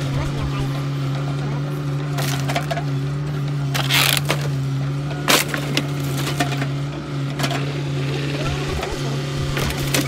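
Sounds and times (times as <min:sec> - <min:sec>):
excavator diesel engine drone: 0:00.0 - 0:10.0
wood splintering crunch: 0:03.7 - 0:04.5.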